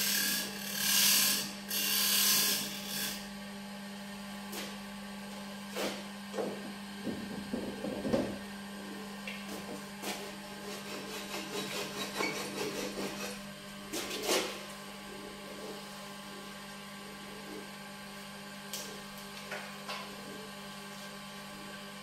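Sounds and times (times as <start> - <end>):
wood lathe humming: 0.0 - 3.3, 10.1 - 13.8.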